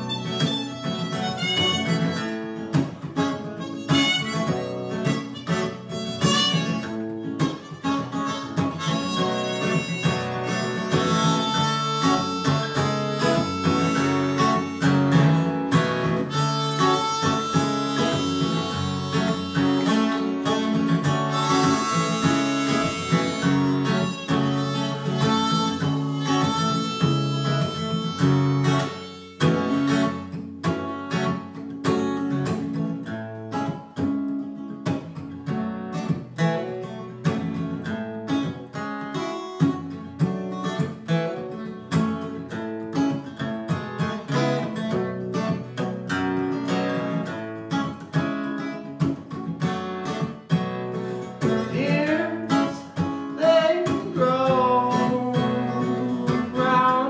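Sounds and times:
harmonica: 0.0 - 31.2, 50.0 - 57.0
acoustic guitar strumming: 0.0 - 57.0.

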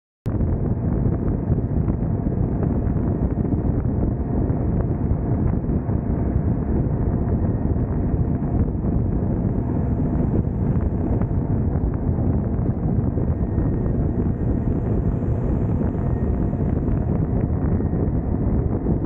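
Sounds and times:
wind on microphone: 0.3 - 19.0
motorcycle engine cruising: 0.6 - 19.0.

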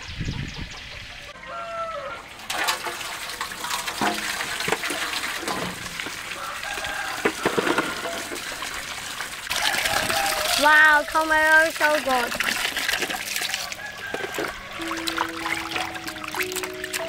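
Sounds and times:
water running into steel basin: 2.2 - 17.0
tomatoes splashing into water: 11.7 - 17.0.

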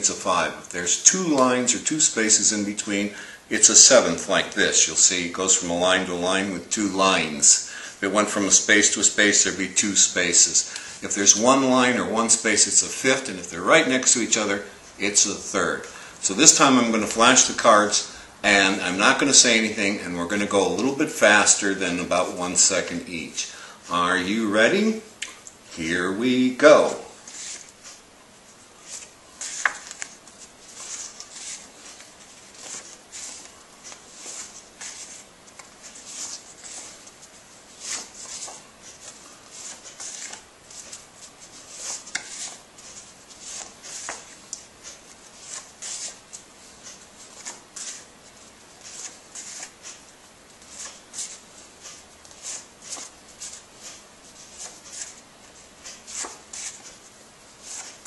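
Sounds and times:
paper cards flipping: 28.8 - 57.0, 57.6 - 58.0.

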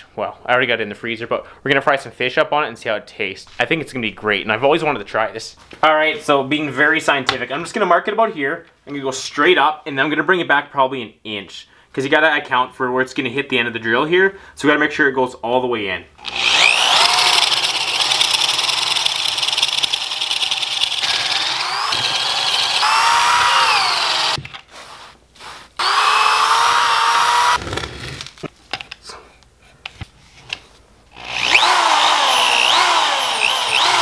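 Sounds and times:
electric drill boring into wood: 16.2 - 24.4, 25.8 - 27.6, 31.1 - 34.0.

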